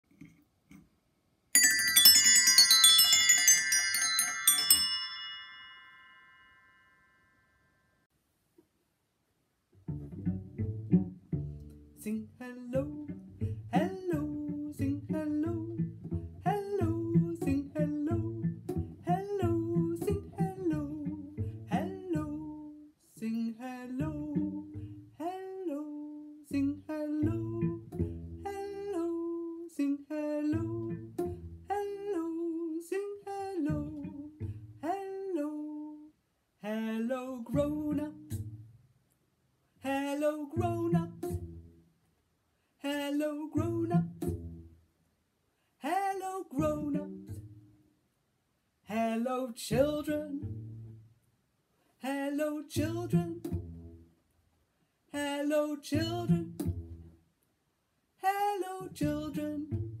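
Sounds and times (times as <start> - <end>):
spinning toy bells jangling: 1.6 - 6.7
cello plucked pizzicato: 9.8 - 36.0, 37.1 - 38.9, 39.9 - 41.9, 43.0 - 44.9, 46.5 - 47.8, 49.7 - 51.2, 52.1 - 54.3, 55.2 - 57.3, 58.4 - 60.0.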